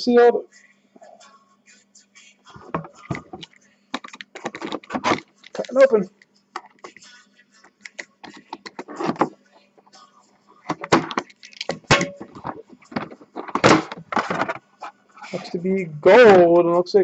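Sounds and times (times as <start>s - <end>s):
cardboard scraping and rustling: 13.0s - 14.6s.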